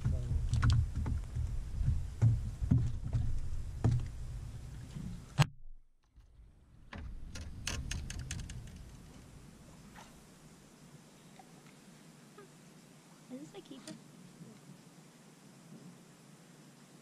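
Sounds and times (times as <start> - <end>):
low uneven rumble with knocks: 0.0 - 5.4, 6.2 - 10.4
light clicks and rattles: 7.0 - 9.3.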